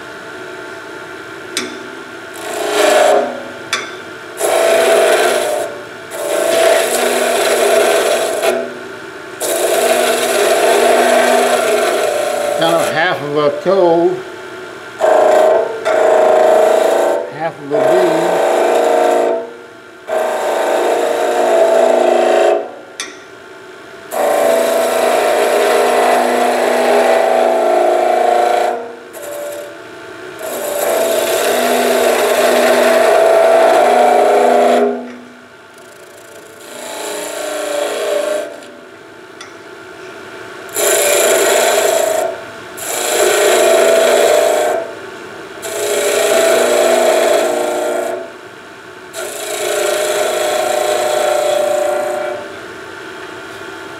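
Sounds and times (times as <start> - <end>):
chisel cutting wood on a lathe: 2.4 - 3.4, 4.4 - 8.7, 9.4 - 14.0, 15.0 - 19.4, 20.1 - 22.8, 24.1 - 29.7, 30.4 - 35.1, 35.8 - 38.8, 40.7 - 45.0, 45.6 - 48.3, 49.1 - 52.5.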